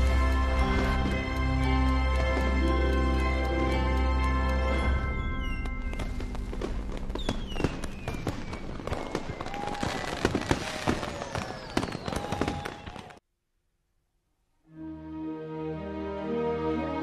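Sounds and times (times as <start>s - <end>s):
fireworks crackling bangs: 5.8s - 13.2s
falling firework whistles: 7.2s - 13.2s.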